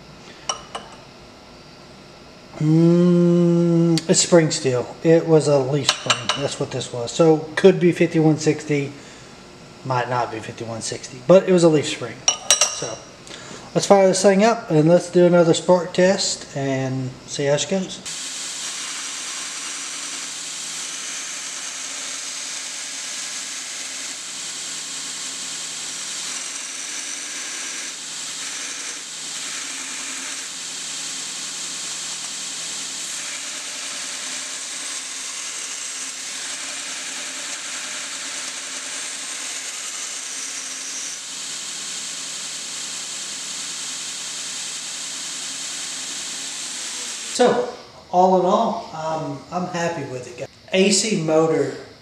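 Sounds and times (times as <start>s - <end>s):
belt grinder hissing on steel: 18.0s - 47.8s.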